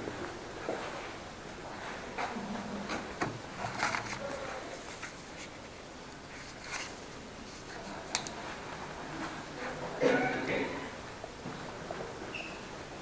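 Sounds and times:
rustling and scraping: 0.6s - 9.9s.

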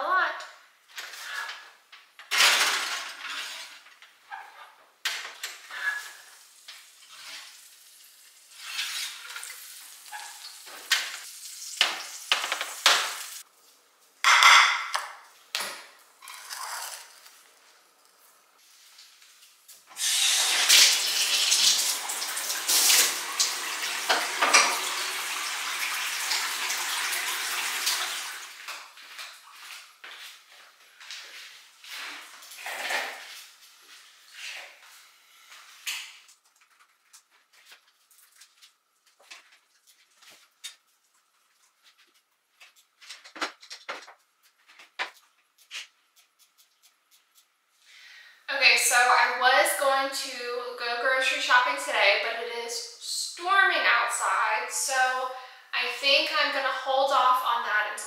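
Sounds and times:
water gushing into bathtub: 20.0s - 28.7s.

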